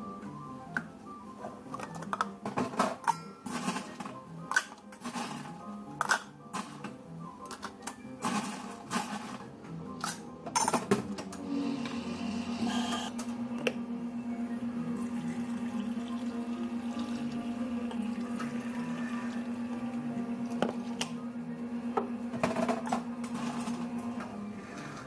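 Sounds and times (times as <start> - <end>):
espresso machine pump humming: 11.5 - 13.2.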